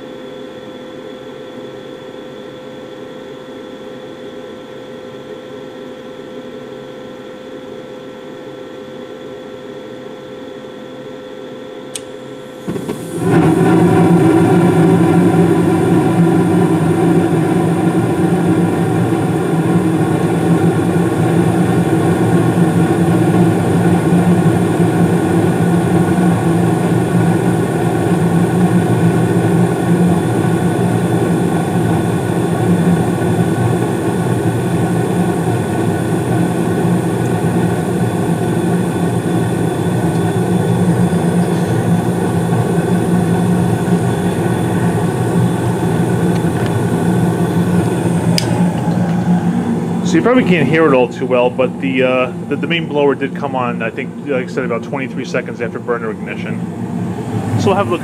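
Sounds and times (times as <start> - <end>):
furnace motor hum: 0.0 - 58.0
gas burners rushing: 11.9 - 58.0.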